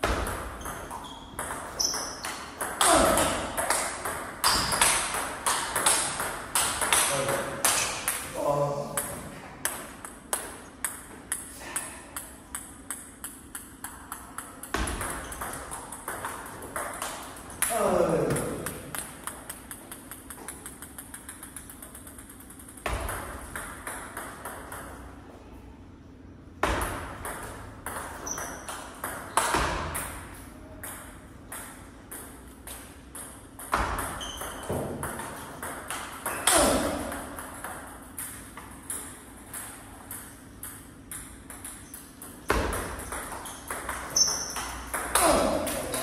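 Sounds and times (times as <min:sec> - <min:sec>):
loud table tennis hits: 0:00.0 - 0:25.2, 0:26.5 - 0:46.0
table tennis ball clicking: 0:12.2 - 0:17.7, 0:18.5 - 0:24.9.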